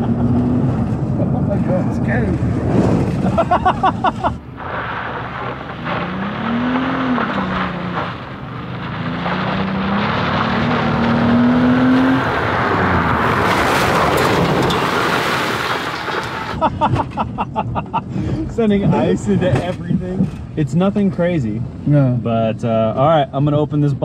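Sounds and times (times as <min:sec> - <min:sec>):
van engine revving: 0:00.0 - 0:17.2
road noise: 0:00.0 - 0:24.0
people laughing: 0:03.2 - 0:04.4, 0:16.6 - 0:18.1.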